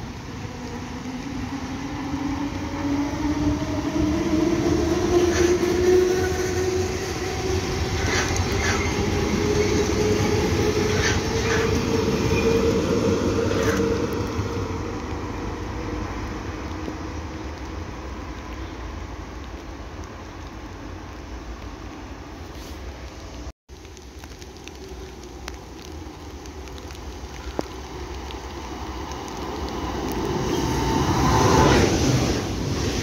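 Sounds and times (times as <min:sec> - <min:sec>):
electric train passing: 0:00.0 - 0:18.6, 0:28.5 - 0:33.0.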